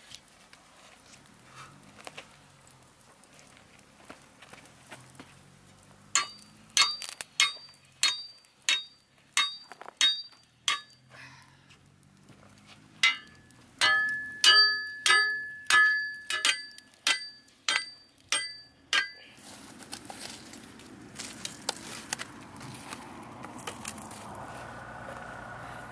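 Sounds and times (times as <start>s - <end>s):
embers crackling: 0.0s - 25.9s
hatchet clanging on iron frame: 6.2s - 11.1s, 13.0s - 19.3s.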